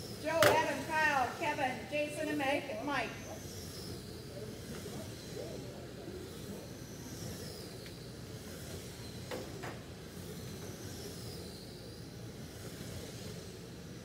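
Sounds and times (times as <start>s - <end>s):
rc truck motor whines: 0.0s - 14.0s
hiss of running trucks: 6.2s - 14.0s.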